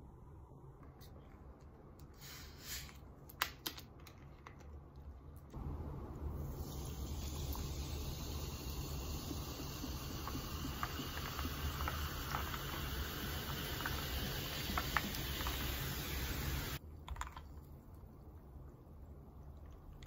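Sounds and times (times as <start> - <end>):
carbonated water pouring: 6.2 - 17.6
fizzing and crackling ice: 6.4 - 17.6.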